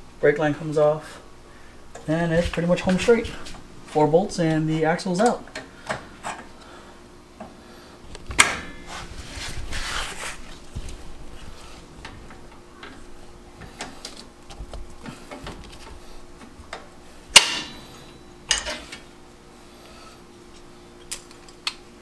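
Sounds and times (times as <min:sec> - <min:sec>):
rustling scrape: 0:08.8 - 0:11.9
sharp metallic clank: 0:17.3 - 0:18.8.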